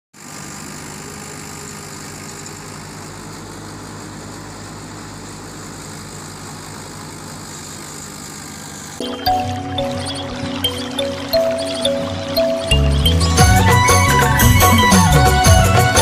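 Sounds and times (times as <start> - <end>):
diesel tractor engine running: 0.2 - 16.0
thresher running: 0.2 - 16.0.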